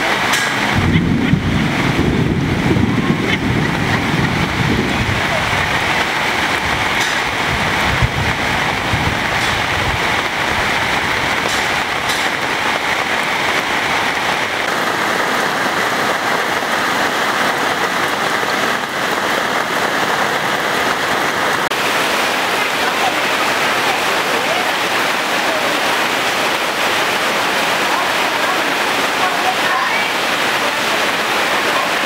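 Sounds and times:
heavy rain on a street: 0.0 - 32.0
low rumble: 0.7 - 14.7.

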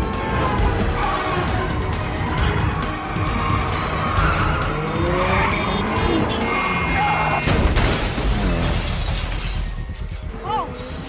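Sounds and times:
race car engines revving: 0.0 - 7.5
tyres skidding: 0.0 - 11.0.

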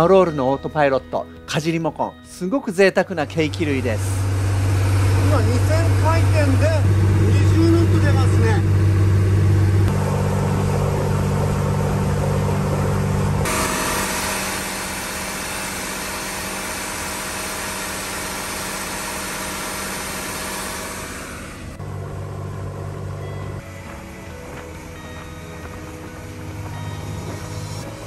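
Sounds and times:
boat diesel engine droning: 3.2 - 28.0.

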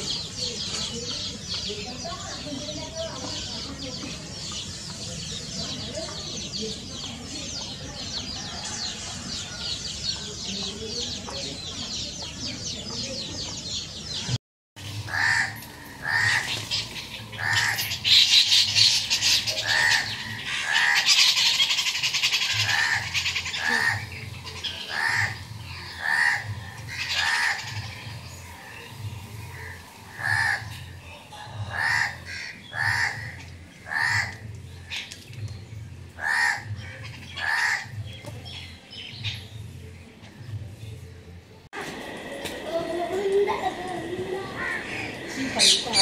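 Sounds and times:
birds twittering: 0.0 - 41.2, 41.9 - 46.0
high-pitched bird chatter: 15.1 - 39.7.

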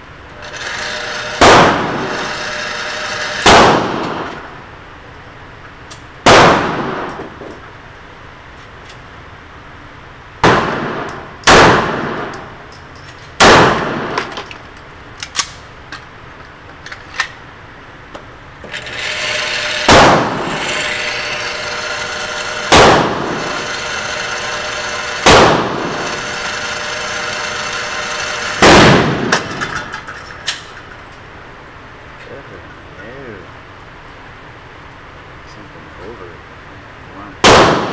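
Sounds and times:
target carrier whirring: 0.3 - 4.7, 18.6 - 31.3
gunshots echoing indoors: 1.3 - 4.6, 6.2 - 7.4, 10.4 - 12.6, 13.4 - 14.3, 19.5 - 29.5, 37.4 - 37.9.

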